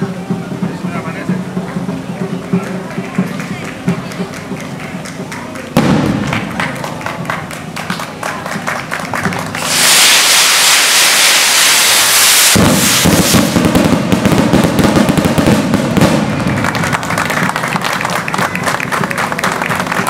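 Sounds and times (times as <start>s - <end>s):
firework crackling: 0.0s - 20.0s
firework spark shower hissing: 9.2s - 16.5s.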